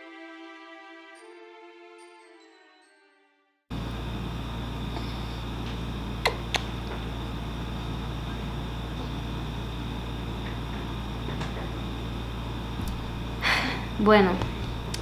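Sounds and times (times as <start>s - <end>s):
low room hum: 3.7s - 15.0s.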